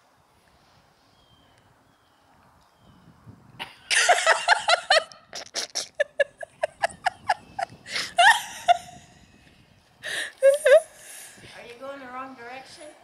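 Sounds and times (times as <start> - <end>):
person laughing: 3.6 - 9.0, 10.1 - 10.9.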